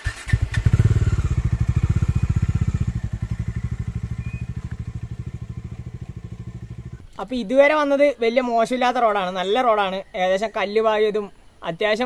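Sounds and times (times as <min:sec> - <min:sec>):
motorcycle engine running: 0:00.0 - 0:07.1.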